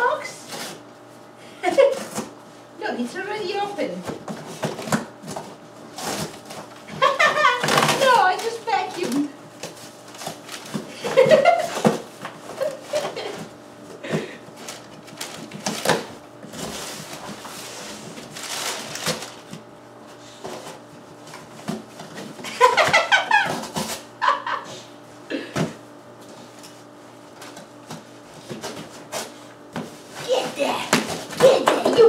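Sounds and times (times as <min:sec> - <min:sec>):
packing paper rustling: 0:04.5 - 0:13.4, 0:14.5 - 0:19.6.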